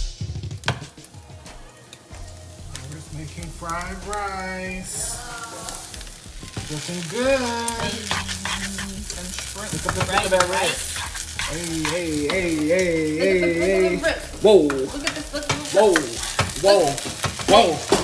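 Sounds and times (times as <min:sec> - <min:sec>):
rice sizzling in a frying pan: 0:00.0 - 0:18.0
wooden spatula scraping a pan: 0:05.2 - 0:13.1.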